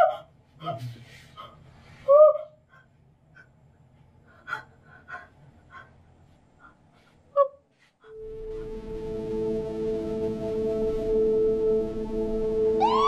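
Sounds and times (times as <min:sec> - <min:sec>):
soft sustained music tones: 0:08.1 - 0:13.0.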